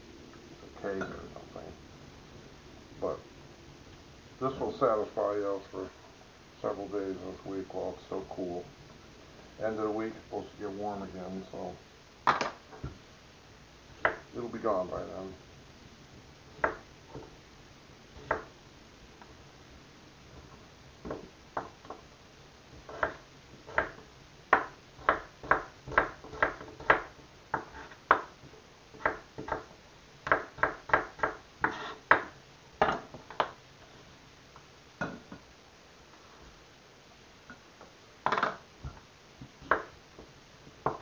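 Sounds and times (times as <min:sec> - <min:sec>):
knife chopping on wooden board: 0:22.9 - 0:28.3, 0:29.0 - 0:33.5.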